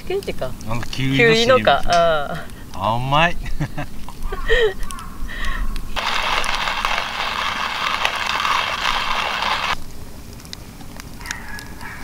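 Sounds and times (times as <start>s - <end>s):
hand coffee grinder crunching: 6.0s - 9.8s.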